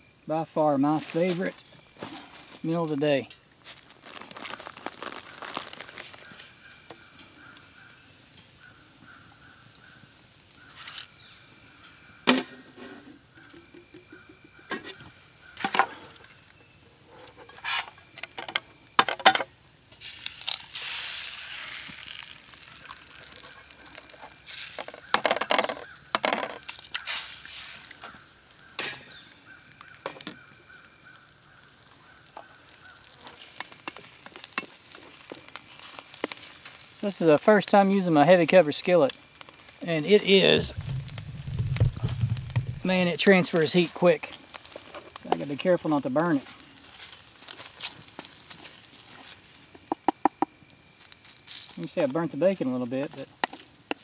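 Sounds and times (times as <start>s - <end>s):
faint high insect drone: 0.0s - 54.0s
eggs sizzling in a pan: 3.3s - 17.0s, 17.6s - 52.2s
utensils scraping in a skillet: 17.2s - 18.4s, 20.0s - 25.8s, 26.4s - 28.2s
egg cracking knocks: 40.6s - 43.0s.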